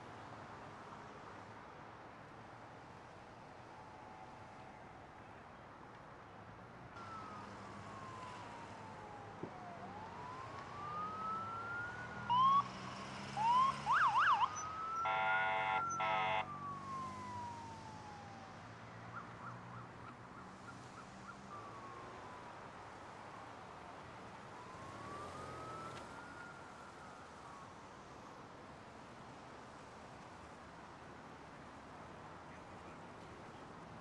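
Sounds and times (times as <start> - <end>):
emergency sirens wailing: 7.0 - 19.5, 21.5 - 23.1, 24.3 - 28.2
short horn blasts: 15.1 - 16.4.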